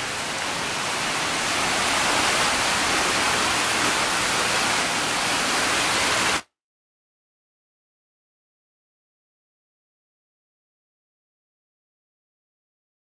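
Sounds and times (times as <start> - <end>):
waterfall rushing: 0.0 - 6.4.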